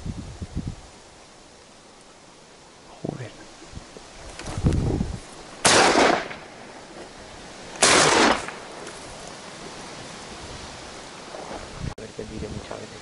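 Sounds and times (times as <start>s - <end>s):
shotgun shots: 5.6s - 6.6s, 7.8s - 8.8s.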